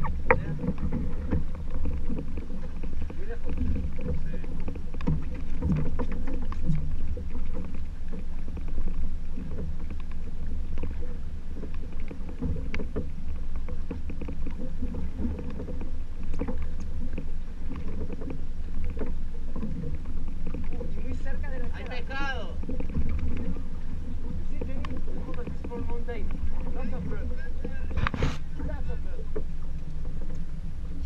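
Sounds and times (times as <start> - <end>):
small clicks and knocks: 0.0 - 11.0, 11.6 - 21.0
boat engine rumble: 0.0 - 31.0.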